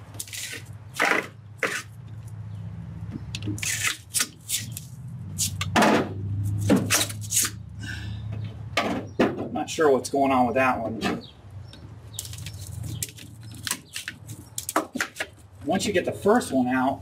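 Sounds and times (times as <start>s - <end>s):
plastic scraping and clicking: 11.7s - 15.5s.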